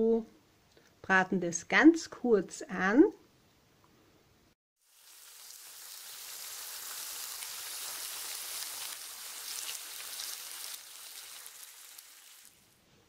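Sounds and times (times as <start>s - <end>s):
food sizzling in hot oil: 4.8s - 12.8s.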